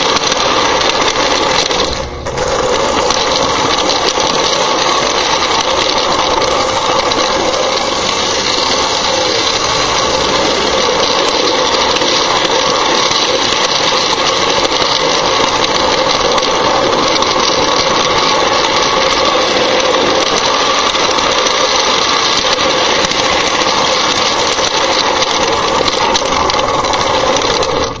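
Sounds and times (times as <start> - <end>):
toy train wheels and motor rattling: 0.0 - 28.0.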